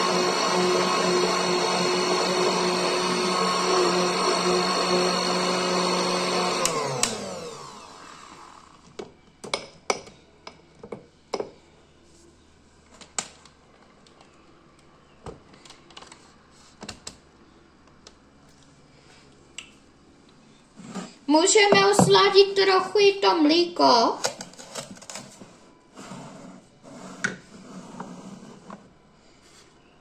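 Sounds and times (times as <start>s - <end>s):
stick blender motor whining: 0.0s - 8.9s.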